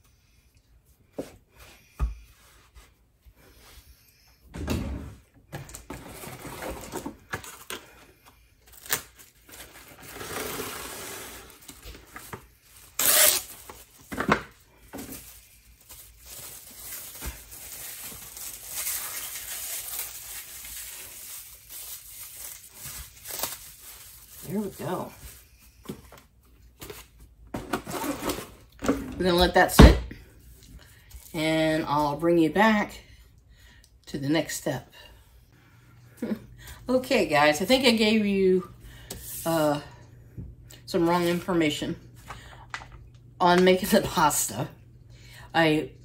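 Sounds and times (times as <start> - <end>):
cling wrap rustling and crinkling: 5.8 - 28.8.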